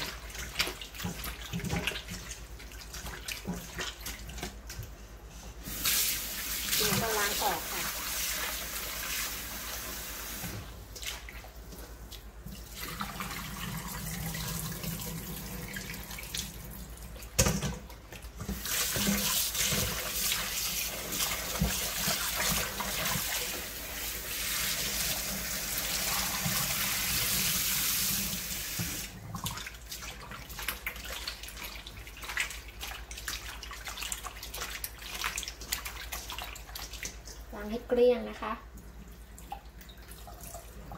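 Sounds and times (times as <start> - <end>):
hands kneading in water: 0.0 - 10.0, 10.6 - 40.9
tap water running into steel bowl: 17.3 - 29.6.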